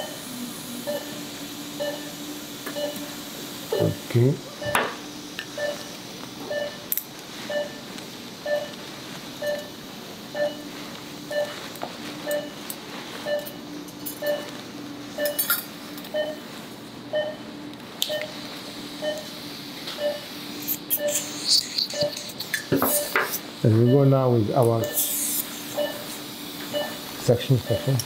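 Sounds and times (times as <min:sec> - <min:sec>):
patient monitor beeping: 0:00.8 - 0:03.1, 0:03.7 - 0:04.8, 0:05.5 - 0:08.8, 0:09.4 - 0:11.6, 0:12.2 - 0:12.6, 0:13.2 - 0:15.4, 0:16.0 - 0:16.5, 0:17.1 - 0:17.5, 0:18.1 - 0:22.3, 0:22.9 - 0:28.0.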